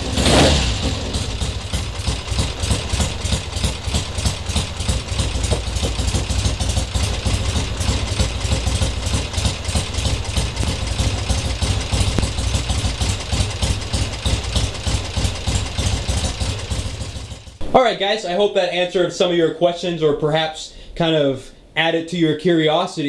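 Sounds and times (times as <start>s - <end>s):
motorcycle engine idling: 0.0s - 17.6s.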